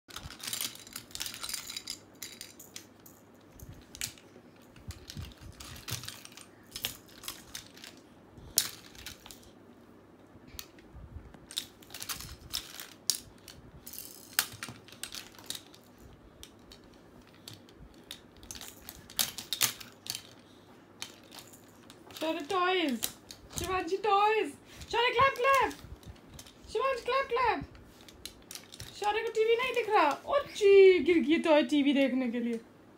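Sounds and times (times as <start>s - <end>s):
plastic rattles clicking: 0.1s - 2.9s, 3.8s - 9.5s.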